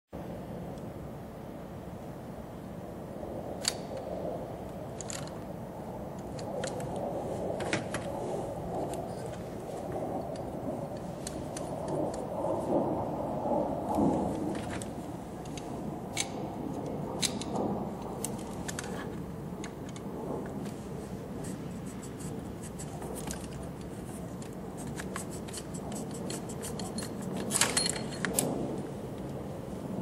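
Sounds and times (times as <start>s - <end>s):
small metal tool clicks and scrapes: 21.9s - 28.5s.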